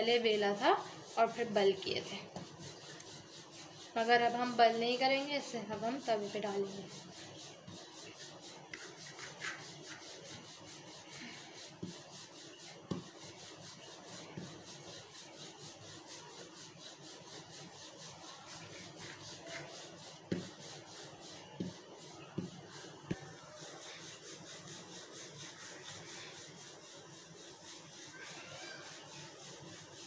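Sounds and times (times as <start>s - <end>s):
rolling pin rubbing on dough: 0.0s - 30.0s
light knocks of rolling pin: 12.9s - 13.1s.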